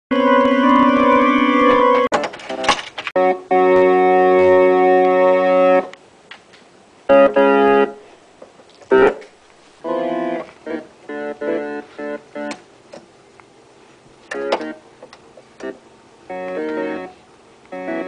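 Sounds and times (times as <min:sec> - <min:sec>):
electronic keyboard chords: 0:00.1 - 0:02.2, 0:03.2 - 0:06.0, 0:07.1 - 0:08.0, 0:08.9 - 0:12.7, 0:14.3 - 0:14.9, 0:15.5 - 0:18.0.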